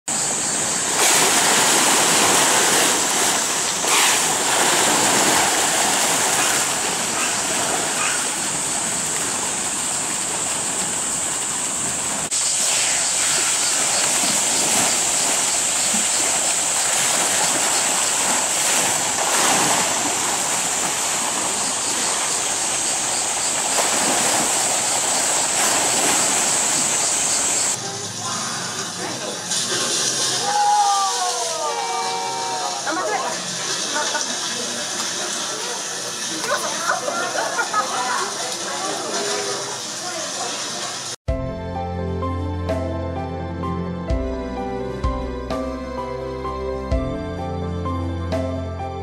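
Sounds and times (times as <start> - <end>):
high-pitched hiss: 0.1 - 37.9
hippopotamus splashing in water: 0.8 - 27.8.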